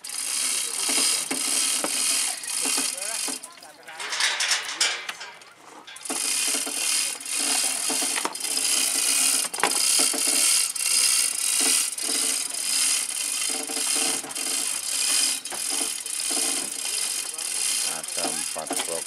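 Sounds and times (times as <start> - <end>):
road cases scraping and rattling: 0.0 - 19.0.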